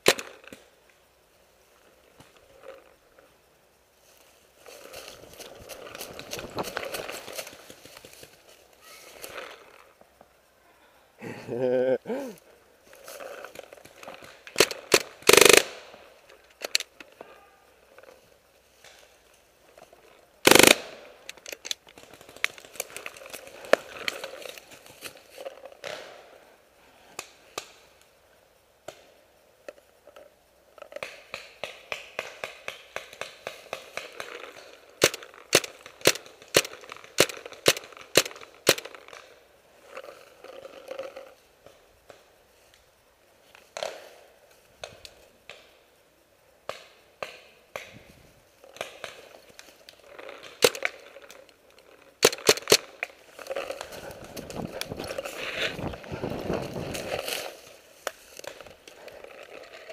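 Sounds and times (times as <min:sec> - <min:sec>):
paintball markers firing: 0:14.1 - 0:15.8, 0:20.5 - 0:22.6, 0:31.0 - 0:39.3, 0:52.2 - 0:54.5.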